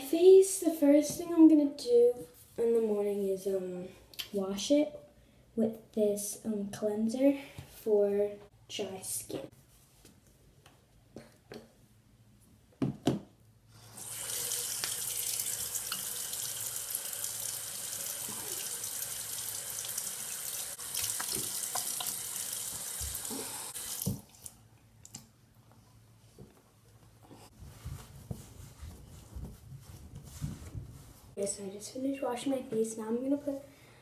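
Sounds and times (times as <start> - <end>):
tap water running into sink: 14.0 - 24.5.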